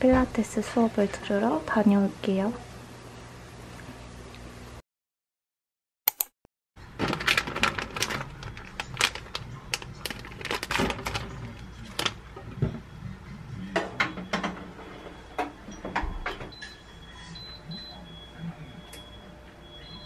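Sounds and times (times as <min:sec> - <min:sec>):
plastic wrapper crinkling: 0:07.0 - 0:12.2
short electronic beep: 0:16.5 - 0:20.0.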